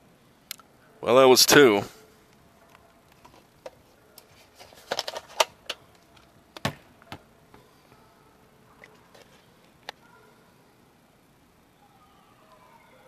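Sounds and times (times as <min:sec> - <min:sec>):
plastic capsules clacking: 0:04.6 - 0:06.3.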